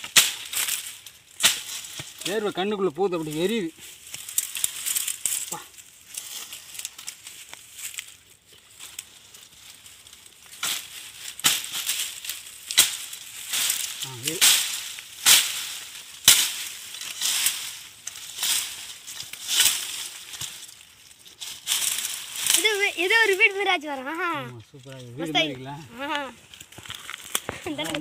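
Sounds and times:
hand tool chopping: 0:00.0 - 0:02.4, 0:10.6 - 0:20.6.

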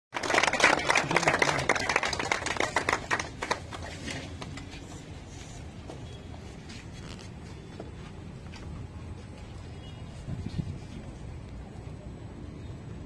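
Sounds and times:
small group clapping: 0:00.1 - 0:04.8.

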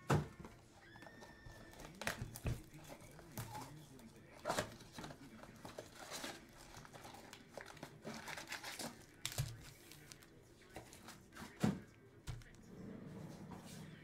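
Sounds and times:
plastic packaging crinkling: 0:00.9 - 0:11.2.

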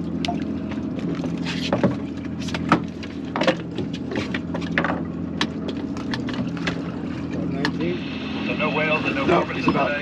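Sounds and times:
boat engine hum: 0:00.0 - 0:10.0
fish knocking and slapping: 0:00.7 - 0:07.8.

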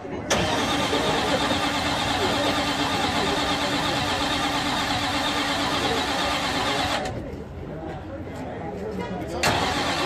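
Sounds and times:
engine starter cranking: 0:00.3 - 0:07.1, 0:09.4 - 0:10.0.

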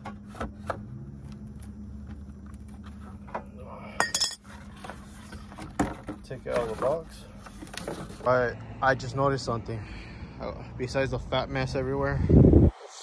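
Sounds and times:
metallic clinks and knocks: 0:04.0 - 0:04.4.

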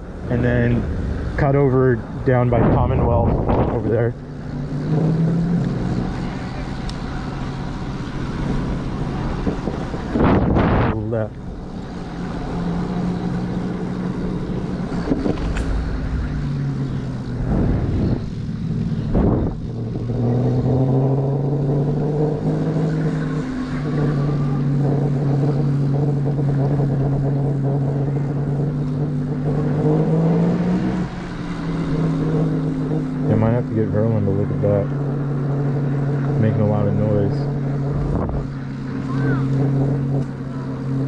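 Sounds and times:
wind rumble on microphone: 0:00.0 - 0:22.4, 0:35.7 - 0:40.5.

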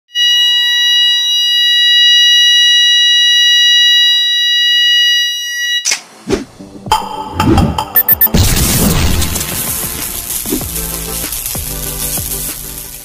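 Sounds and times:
fire alarm continuous tone: 0:00.1 - 0:05.9.

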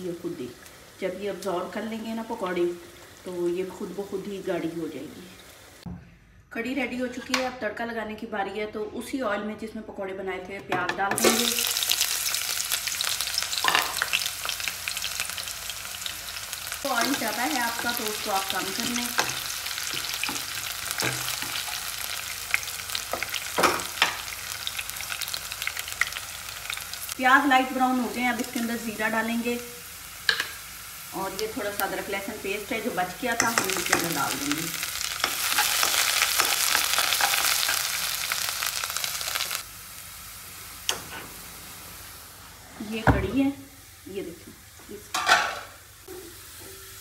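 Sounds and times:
onions sizzling in hot oil: 0:00.0 - 0:05.9, 0:11.2 - 0:47.0
spoon stirring and clicking on pan: 0:33.4 - 0:34.2.

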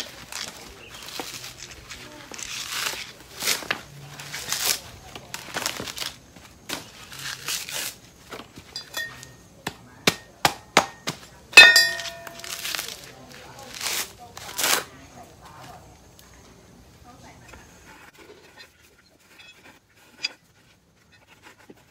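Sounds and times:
coconut husk tearing: 0:00.0 - 0:08.5, 0:09.2 - 0:16.3
loud ringing strike: 0:11.6 - 0:12.5.

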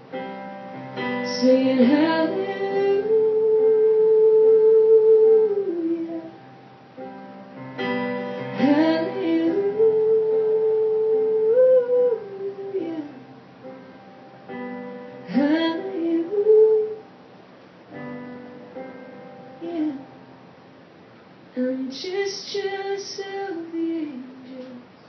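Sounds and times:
woman singing: 0:01.1 - 0:06.4, 0:08.4 - 0:13.3, 0:15.2 - 0:17.0, 0:19.6 - 0:20.2, 0:21.6 - 0:24.9.

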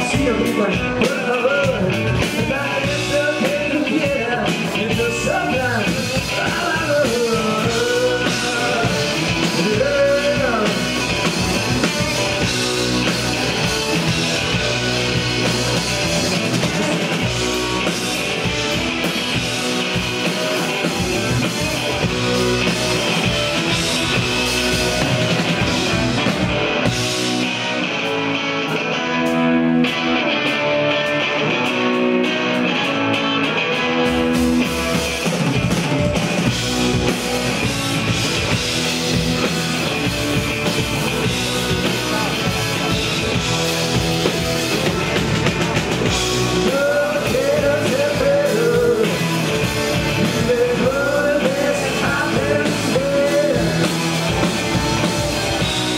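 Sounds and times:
person singing: 0:00.0 - 0:11.3, 0:46.1 - 0:54.5
distorted electric guitars: 0:00.0 - 0:55.9
drum kit: 0:00.0 - 0:55.9.

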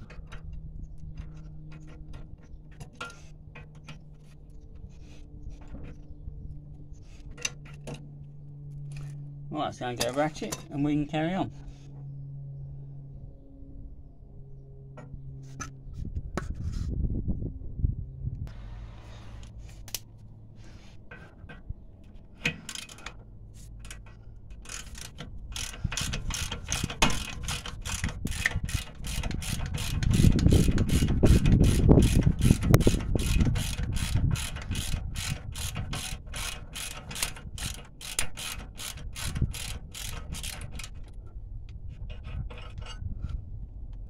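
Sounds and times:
low rumble: 0:10.6 - 0:22.4.

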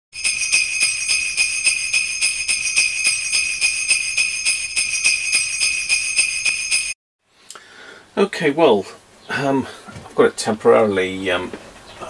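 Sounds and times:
jingle bells shaken: 0:00.2 - 0:07.0.

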